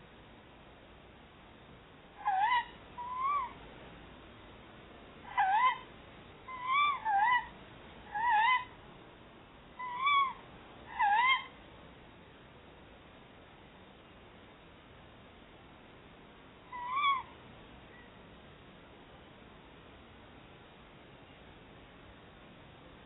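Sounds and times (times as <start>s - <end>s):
owls calling: 2.2s - 3.6s, 5.2s - 5.9s, 6.5s - 8.8s, 9.8s - 11.6s, 16.7s - 17.4s.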